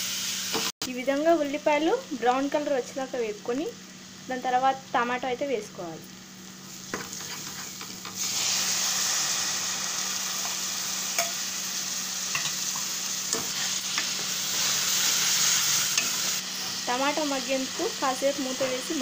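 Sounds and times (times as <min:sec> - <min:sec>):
tomatoes sizzling in oil: 0:00.0 - 0:19.0.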